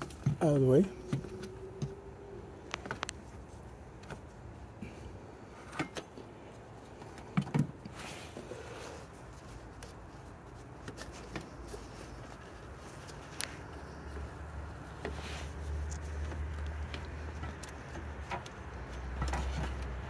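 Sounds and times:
scraping rustle: 6.5s - 20.0s.

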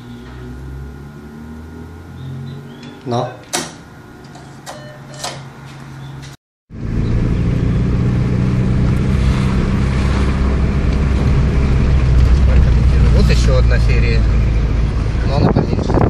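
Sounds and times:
car engine and road noise: 0.0s - 16.0s
cash machine beeps: 4.4s - 5.4s.

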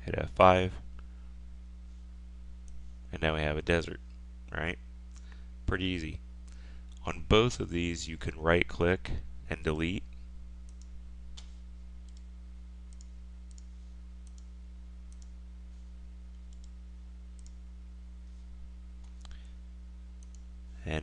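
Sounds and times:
steady low hum: 0.0s - 21.0s
computer mouse clicks: 12.1s - 12.3s, 12.9s - 14.5s, 15.1s - 15.4s, 16.3s - 16.8s, 17.4s - 17.6s, 19.0s - 19.4s, 20.2s - 20.5s.

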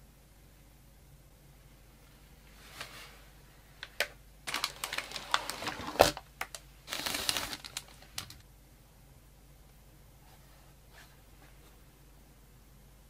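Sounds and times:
plastic packaging crinkling: 3.8s - 8.4s.

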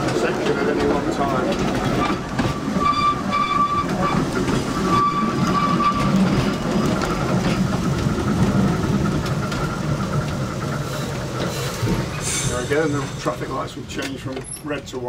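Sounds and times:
tram wheels rumbling on rails: 0.0s - 15.0s
high wheel squeal: 2.0s - 6.3s.

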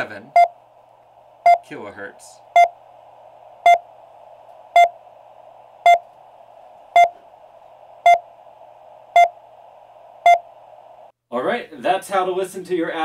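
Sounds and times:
receiver hiss: 0.0s - 11.2s
short radio beeps: 2.5s - 2.8s, 4.7s - 5.0s, 5.8s - 6.1s, 7.0s - 7.2s, 9.1s - 9.4s, 10.2s - 10.5s.

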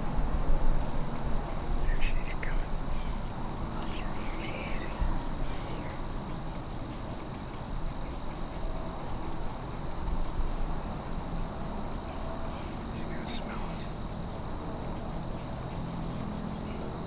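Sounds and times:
high-pitched insect drone: 0.0s - 17.0s
low rumbling noise: 0.0s - 17.0s
faint chirp: 1.8s - 6.1s.

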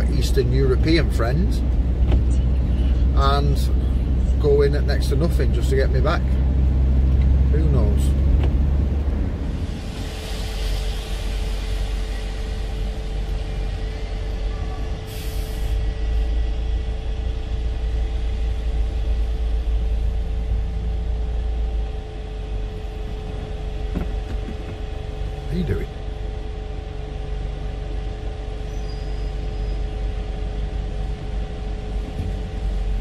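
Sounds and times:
engine and road rumble: 0.0s - 33.0s
hiss: 9.5s - 13.6s, 15.0s - 15.8s.

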